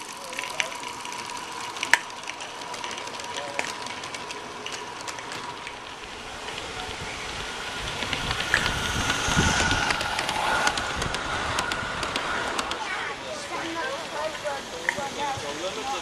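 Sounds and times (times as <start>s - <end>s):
wheels clicking over rail: 0.0s - 13.0s
model train rolling on track: 0.0s - 16.0s.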